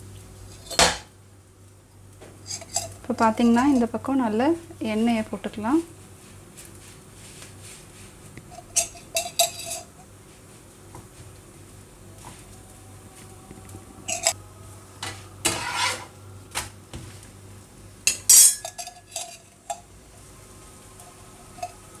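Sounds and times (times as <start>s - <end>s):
metal spatula scraping frying pan: 2.4s - 3.0s, 8.5s - 9.9s, 15.0s - 16.1s, 18.1s - 19.8s, 21.1s - 22.0s.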